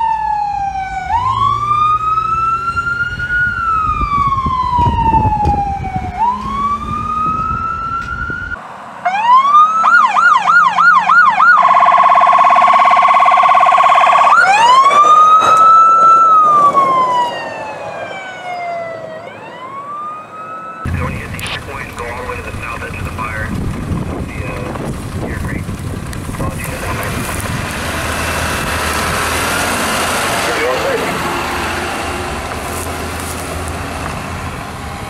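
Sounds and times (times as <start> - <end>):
siren wailing: 0.0 - 23.4
siren yelping and warbling: 0.0 - 23.4
engine rumble: 0.0 - 35.0.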